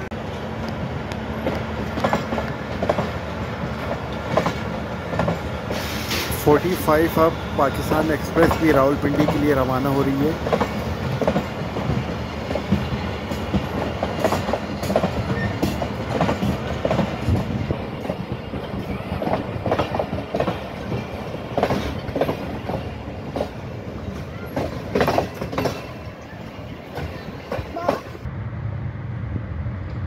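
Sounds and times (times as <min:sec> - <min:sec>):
train coaches rumbling: 0:00.0 - 0:30.0
wheels clicking over rail joints: 0:08.0 - 0:28.2.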